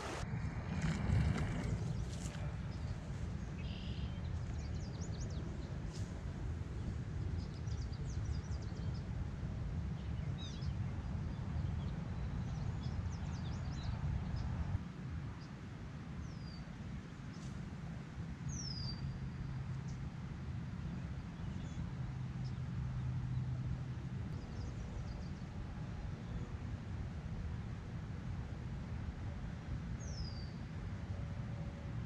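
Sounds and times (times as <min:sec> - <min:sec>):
wind noise on microphone: 0:00.0 - 0:15.4.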